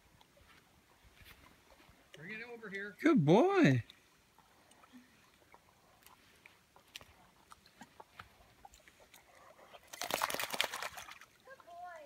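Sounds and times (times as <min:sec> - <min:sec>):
water splashes from dog wading: 0:09.9 - 0:12.0.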